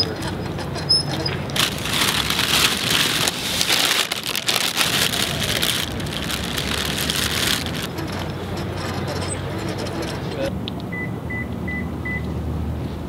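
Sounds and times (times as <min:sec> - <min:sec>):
plastic bag rustling: 0:01.5 - 0:07.9.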